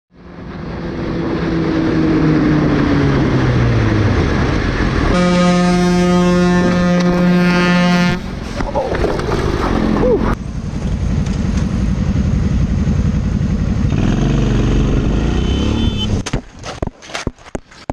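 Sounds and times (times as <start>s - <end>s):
motorcycle engine drone: 0.1s - 16.6s
wind and road noise: 0.1s - 17.9s
vehicle horn blast: 5.1s - 8.3s, 15.2s - 16.2s.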